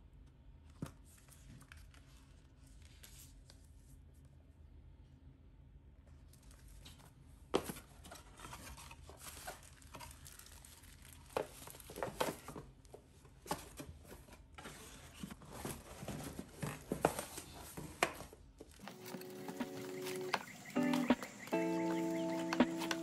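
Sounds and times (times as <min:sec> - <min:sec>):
packaging paper rustling: 0:07.6 - 0:12.6, 0:13.4 - 0:23.0.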